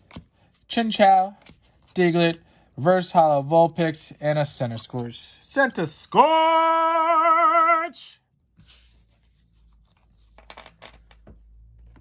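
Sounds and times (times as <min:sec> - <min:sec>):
trading cards rustling and tapping: 0:00.0 - 0:02.5, 0:08.6 - 0:12.0
man singing a long word: 0:06.1 - 0:08.2.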